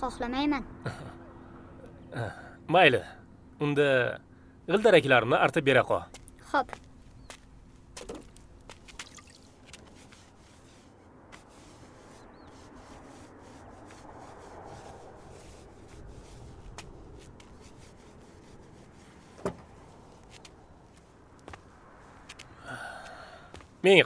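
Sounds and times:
dribbling water: 0:08.9 - 0:09.6
wet rag rubbing wheel: 0:09.6 - 0:20.5.

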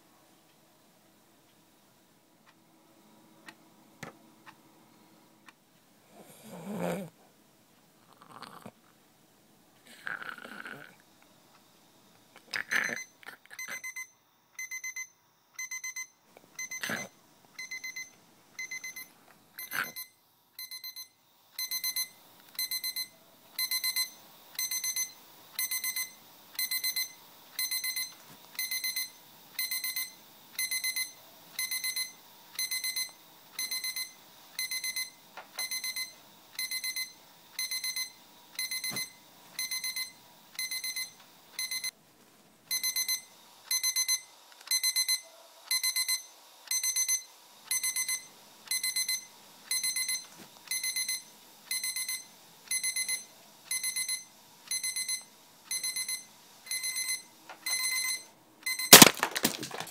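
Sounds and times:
alarm clock beeping: 0:12.8 - 0:17.0, 0:17.6 - 0:41.9, 0:42.7 - 0:59.1.

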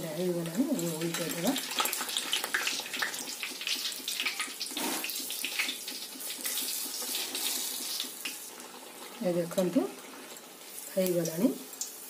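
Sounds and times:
batter deep-frying in hot oil: 0:00.0 - 0:12.0.

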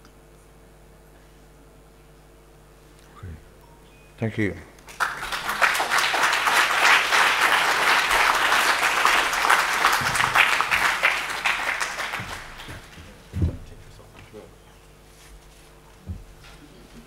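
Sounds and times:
audience applauding: 0:04.8 - 0:13.1
low thump: 0:13.4 - 0:13.8.

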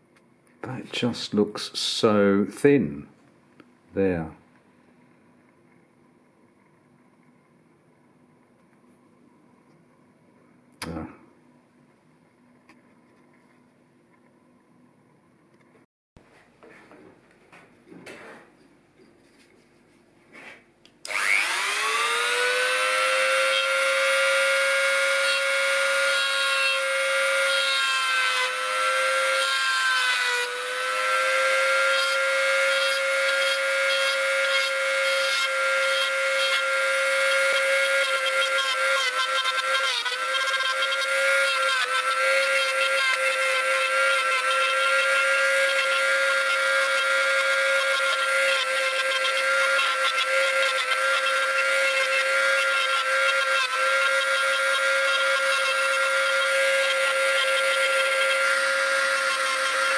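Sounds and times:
rotary tool grinding metal: 0:21.1 - 0:59.9.

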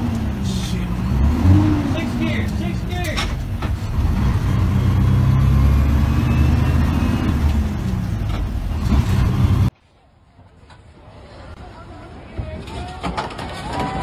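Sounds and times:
diesel truck engine running: 0:00.0 - 0:09.7.

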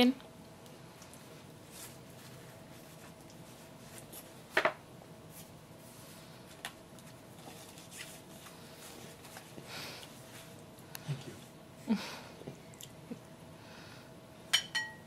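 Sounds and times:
paper napkin rustling: 0:07.2 - 0:09.6.

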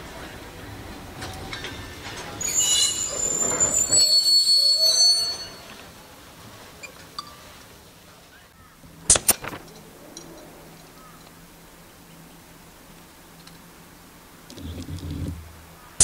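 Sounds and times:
train carriages rumbling: 0:00.0 - 0:16.0
train wheels and brakes squealing: 0:01.2 - 0:07.6.

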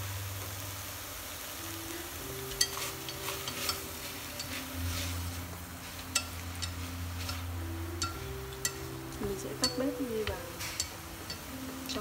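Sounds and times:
meat and mushrooms sizzling in a pot: 0:00.0 - 0:12.0
chopsticks clicking against a pot: 0:06.1 - 0:07.4, 0:08.0 - 0:08.9, 0:09.6 - 0:11.5.

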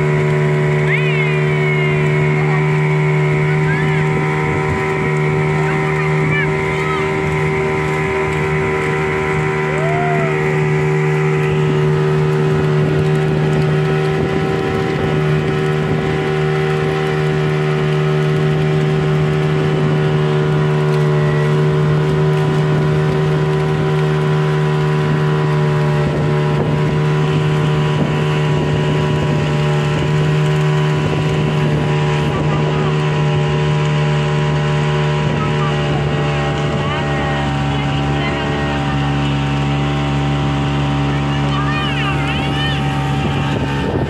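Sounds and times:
boat engine running: 0:00.0 - 0:44.0.

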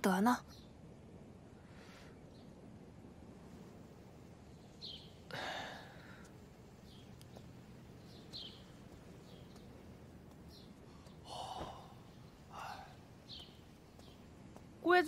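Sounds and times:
small birds chirping: 0:00.0 - 0:15.0
person exhaling heavily: 0:05.3 - 0:06.2, 0:11.3 - 0:12.9.

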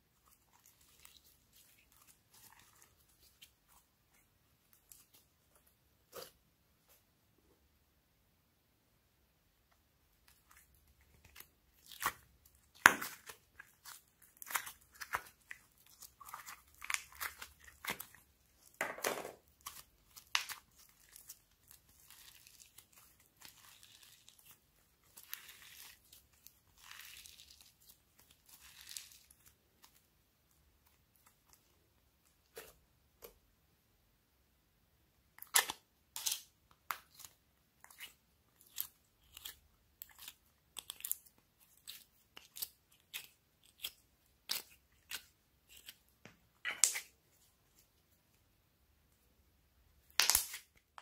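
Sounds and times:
slime sticky crackles: 0:00.1 - 0:05.3, 0:10.2 - 0:18.8, 0:19.4 - 0:31.8.

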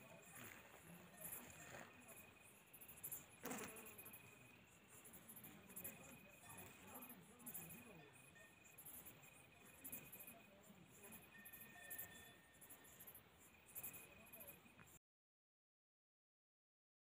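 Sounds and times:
faint crickets chirping: 0:00.0 - 0:15.0.

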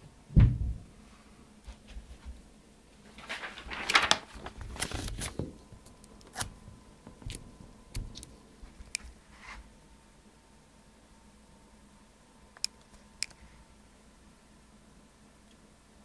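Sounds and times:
paper rustling near microphone: 0:03.0 - 0:05.6.

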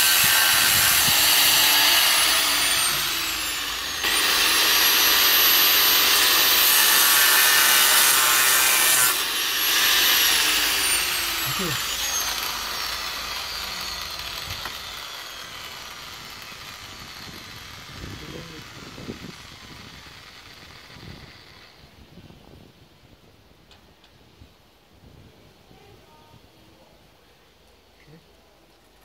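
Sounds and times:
angle grinder spinning down: 0:00.0 - 0:21.8.

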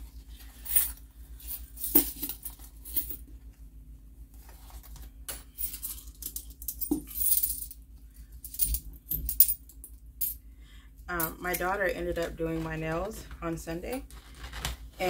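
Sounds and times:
coins clinking: 0:00.6 - 0:03.2, 0:05.3 - 0:07.8, 0:08.4 - 0:10.4.

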